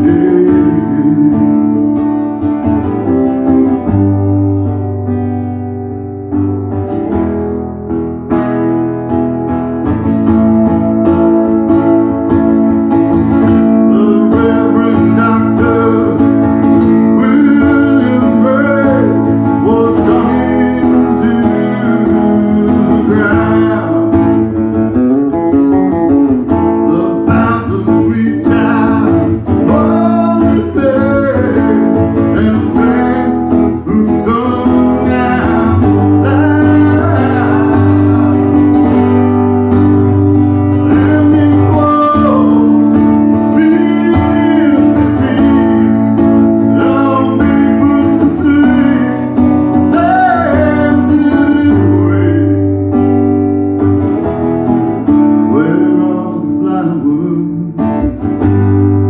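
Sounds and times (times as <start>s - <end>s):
man singing: 0.0s - 4.3s, 13.2s - 25.6s, 26.4s - 39.8s, 40.5s - 53.2s, 55.0s - 58.3s
acoustic guitar strummed fast: 0.0s - 59.0s.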